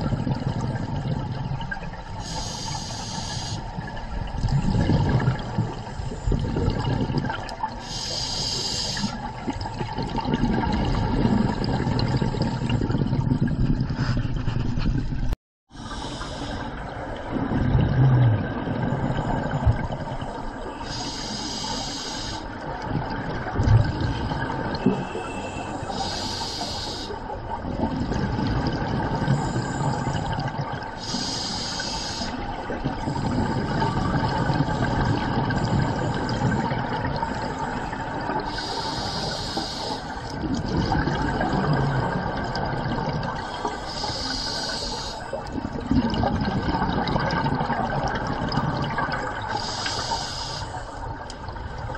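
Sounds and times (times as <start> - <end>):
exhaled bubbles rumbling: 0.0 - 2.6, 3.6 - 8.1, 8.9 - 16.0, 16.6 - 21.0, 22.5 - 26.2, 27.2 - 31.3, 32.2 - 49.9, 50.7 - 51.9
regulator hissing on inhale: 2.2 - 3.7, 7.8 - 9.2, 15.8 - 16.8, 20.8 - 22.5, 25.7 - 27.2, 31.0 - 32.4, 38.5 - 40.4, 43.4 - 45.4, 49.5 - 51.0.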